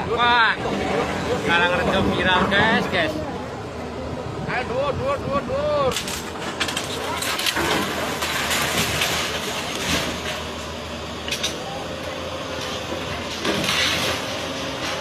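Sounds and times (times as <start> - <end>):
excavator diesel engine running: 0.0 - 15.0
debris knocking and scraping: 5.9 - 10.6.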